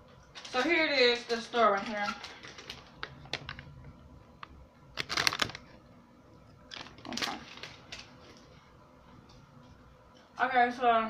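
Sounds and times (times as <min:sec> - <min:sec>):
rustling and clicking handling noise: 0:00.0 - 0:05.8, 0:06.7 - 0:08.6.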